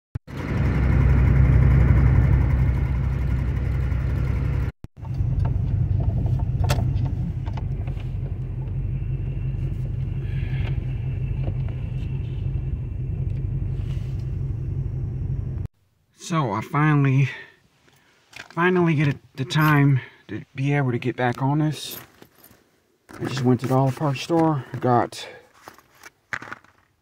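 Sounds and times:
car engine humming: 0.3 - 15.7.

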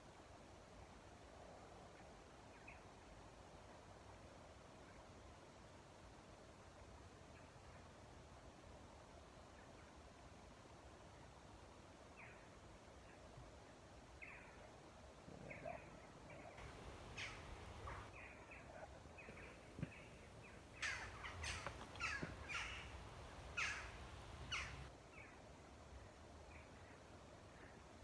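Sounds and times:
birds calling: 15.4 - 24.9.

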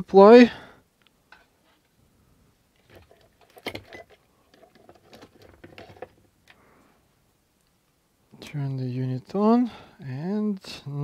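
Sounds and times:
small objects clicking and rustling: 2.8 - 6.6.

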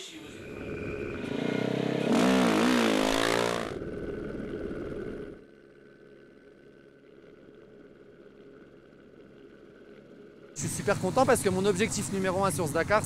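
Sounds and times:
motorcycle engine revving: 0.4 - 5.5, 10.6 - 13.0.

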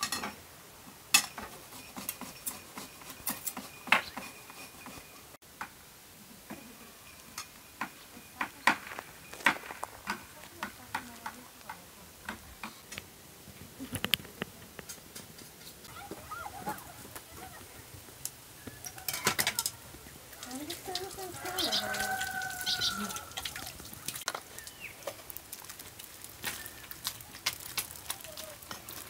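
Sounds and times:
utensils clinking against dishes: 0.0 - 0.4, 1.2 - 5.3, 18.8 - 19.8.

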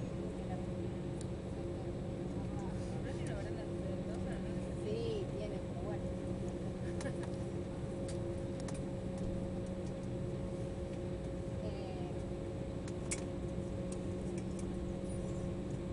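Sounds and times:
jet cabin hum: 0.0 - 15.9
light clicks and rattles: 13.9 - 14.8.

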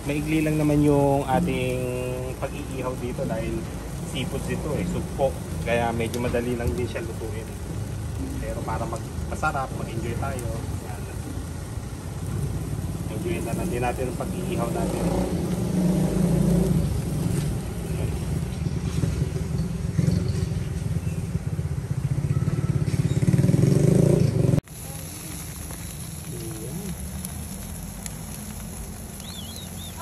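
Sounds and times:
low motor rumble: 0.0 - 22.1
prawns sizzling on charcoal grill: 0.0 - 30.0.

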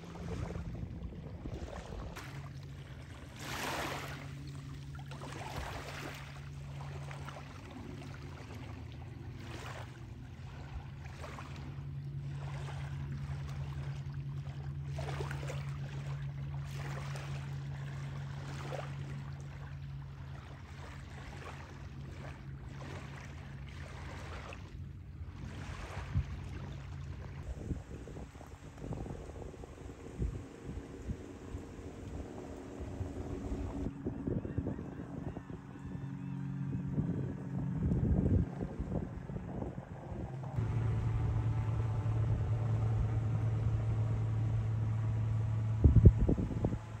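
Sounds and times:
small waves washing on shore: 0.0 - 33.9
low motor drone: 0.0 - 47.0.

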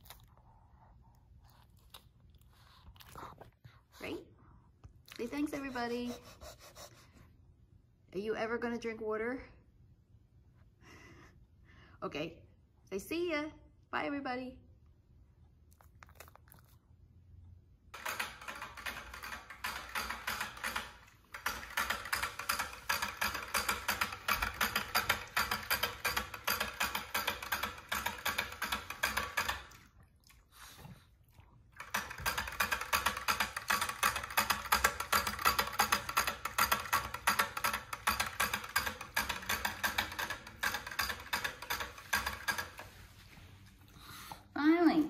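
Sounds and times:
dog licking water spout clicking: 18.0 - 30.6, 31.4 - 43.0.

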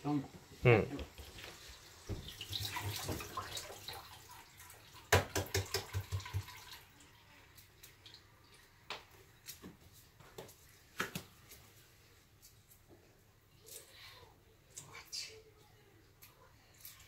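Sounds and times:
water splashing: 2.1 - 7.0.

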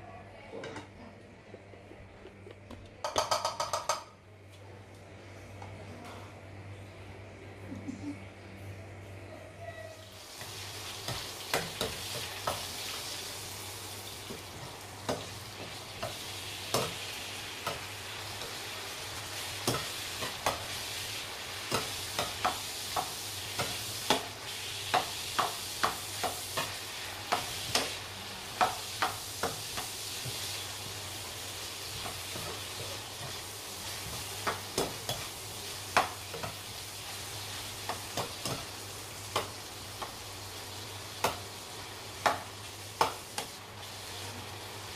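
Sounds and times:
vegetables sizzling in oil: 10.0 - 44.9.

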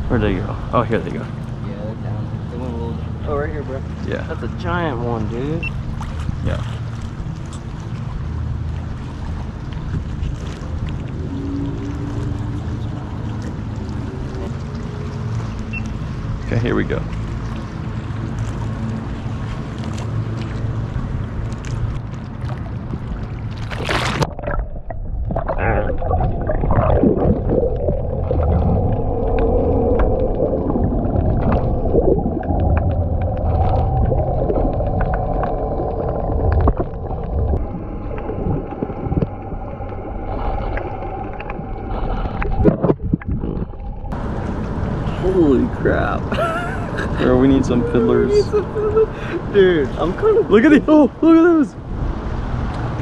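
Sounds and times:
underwater rumble with droning hum: 0.0 - 53.0
wind: 0.0 - 53.0
water sloshing: 0.9 - 51.1
splash into water: 22.4 - 29.0.

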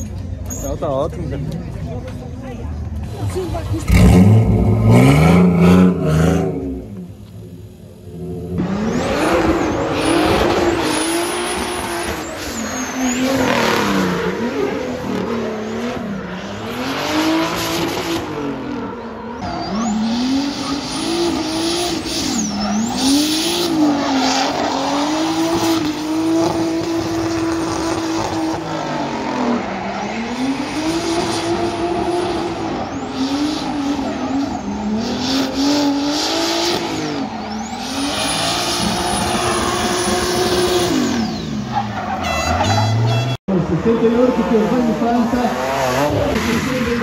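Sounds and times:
tyre squeal: 0.4 - 0.8, 8.9 - 14.0, 19.4 - 25.6, 36.7 - 43.4
car engine revving hard: 3.4 - 6.9, 8.1 - 18.9, 19.6 - 42.1.

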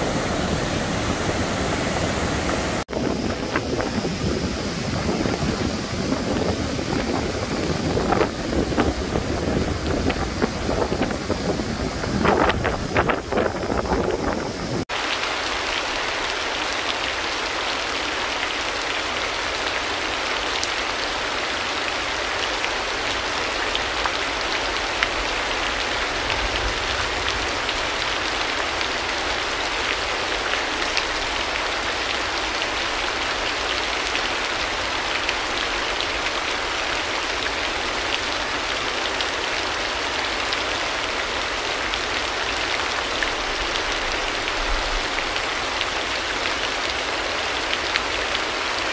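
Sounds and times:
rain drop ticks: 0.0 - 14.0
wind on microphone: 0.0 - 14.9
steady rain hiss: 0.0 - 48.9.

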